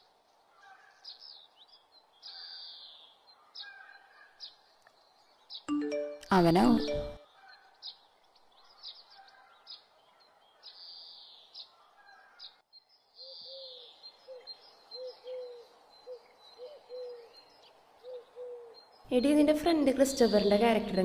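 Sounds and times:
high bird chirps: 0:05.6 - 0:07.2.

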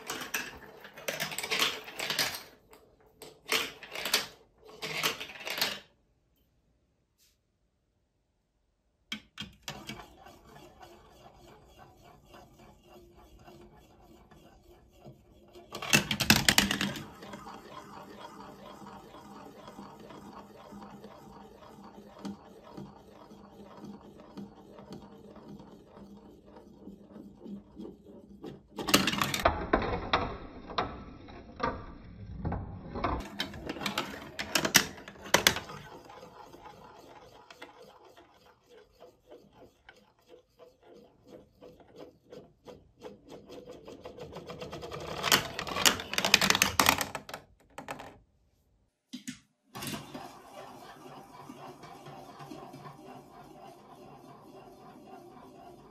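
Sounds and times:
marble clattering with rapid clicks: 0:00.0 - 0:05.9, 0:09.1 - 0:27.9, 0:28.5 - 0:48.2
marble rolling on plastic track: 0:00.0 - 0:05.9, 0:09.1 - 0:48.2, 0:49.8 - 0:55.9.

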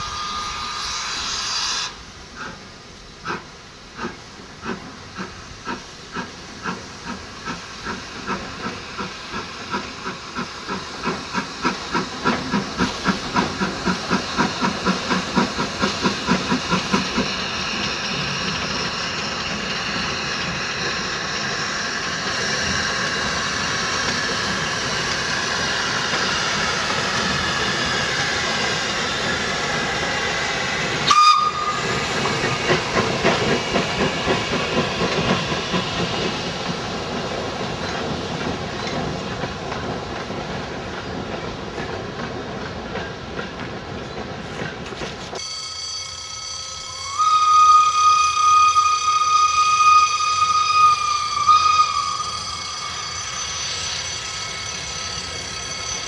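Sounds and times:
train whistle toot: 0:00.0 - 0:02.0, 0:31.0 - 0:32.0, 0:46.7 - 0:53.3
steam hissing: 0:00.0 - 0:45.4, 0:46.8 - 0:56.0
steam locomotive exhaust beats: 0:00.0 - 0:56.0.

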